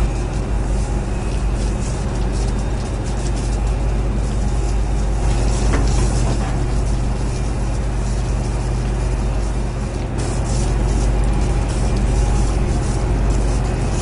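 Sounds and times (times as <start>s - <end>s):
diesel engines rumbling: 0.0s - 14.0s.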